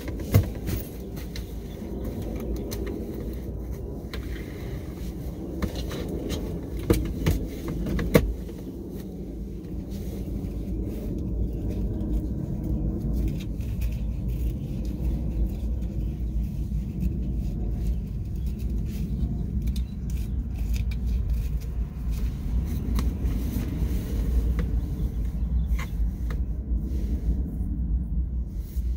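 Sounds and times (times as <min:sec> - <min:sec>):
fabric handling noise: 0:00.0 - 0:27.6
steady low rumble: 0:00.0 - 0:28.9.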